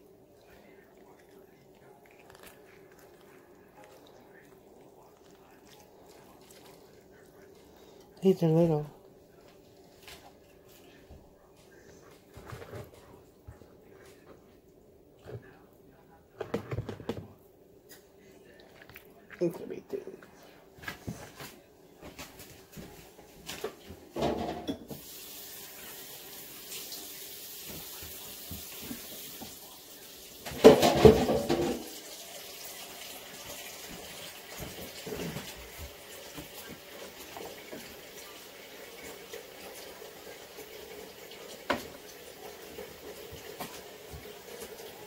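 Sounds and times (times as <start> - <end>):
burst of running water: 24.9 - 45.0.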